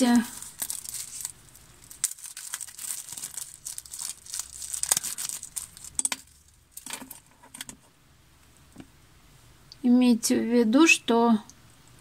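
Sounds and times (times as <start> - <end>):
packaging crinkling: 0.0 - 7.3.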